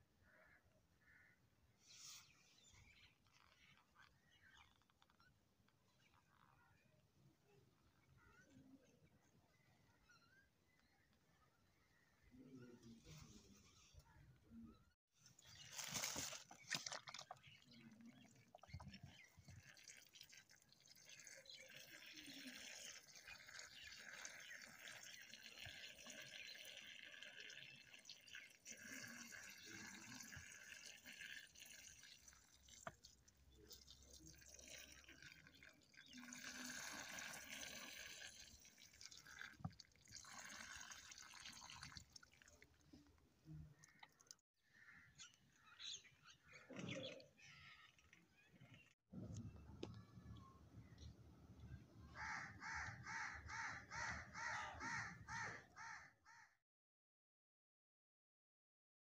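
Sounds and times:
water trickling onto soil: 0:15.4 - 0:44.4.

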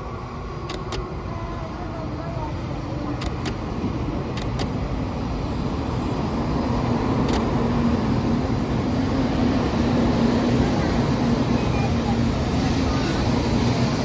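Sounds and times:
train wheels rumbling on rail: 0:00.0 - 0:14.0
short clicks: 0:00.6 - 0:01.1.

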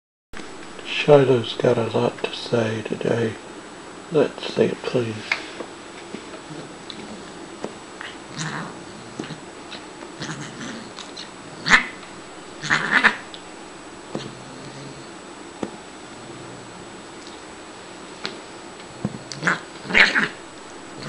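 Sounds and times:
cat vocalizing: 0:08.0 - 0:12.0, 0:12.6 - 0:13.3, 0:19.2 - 0:20.4.

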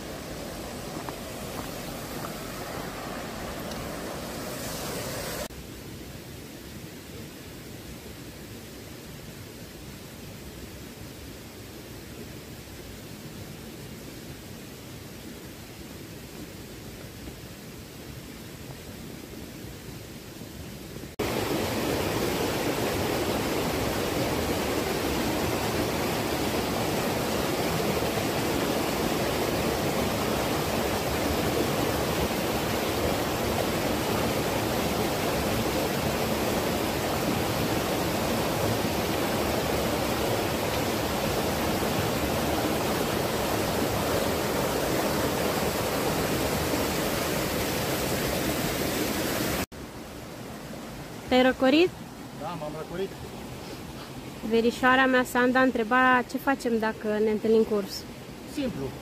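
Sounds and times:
waterfall rushing: 0:00.0 - 0:05.5, 0:21.1 - 0:51.3.

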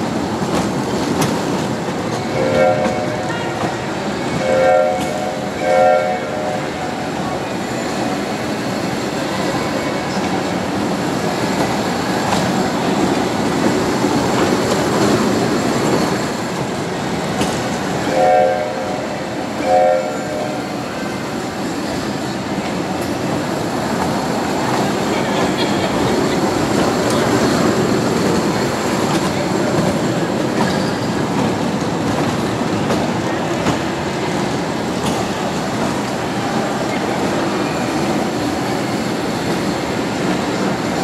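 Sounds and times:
kiddie train ride running: 0:00.0 - 0:41.0
train horn toots: 0:02.3 - 0:03.8, 0:04.4 - 0:07.0, 0:18.1 - 0:20.9.

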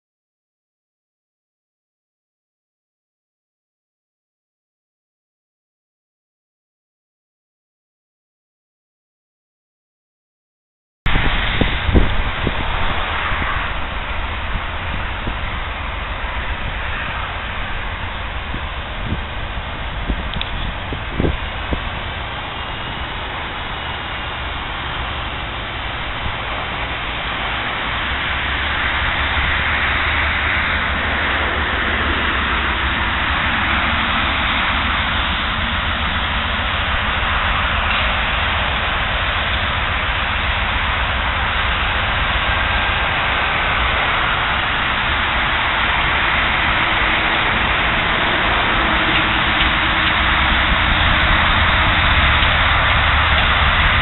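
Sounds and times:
diesel locomotive rumble: 0:11.1 - 0:54.0.

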